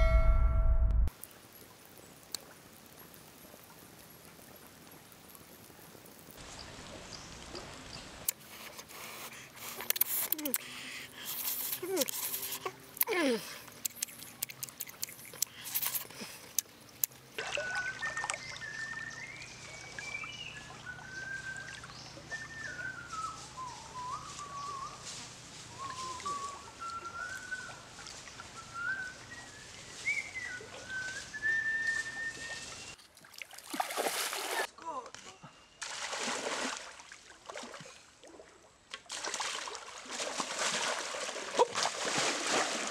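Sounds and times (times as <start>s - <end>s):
chewing mouth clicks: 11.3s - 16.7s
person whistling a tune: 28.7s - 32.8s.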